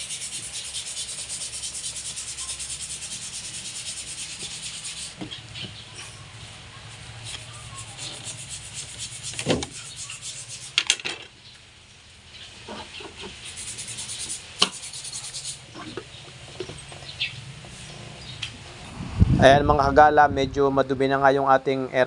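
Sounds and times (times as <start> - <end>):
rubber hose rubbing and scraping: 6.9 - 11.0.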